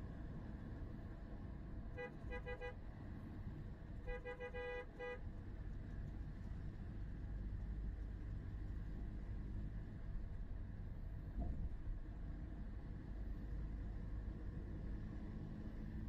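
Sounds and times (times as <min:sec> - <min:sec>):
road rumble inside car: 0:00.0 - 0:16.0
car horn short toots: 0:02.0 - 0:02.8, 0:04.1 - 0:05.2.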